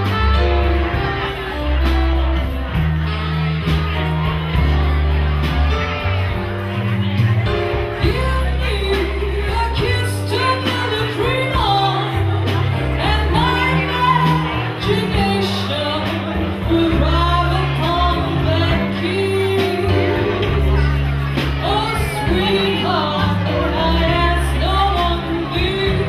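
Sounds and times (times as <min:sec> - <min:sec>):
drum kit with cymbals: 0:00.0 - 0:26.0
low bass notes: 0:00.0 - 0:26.0
woman singing into a microphone: 0:08.0 - 0:26.0.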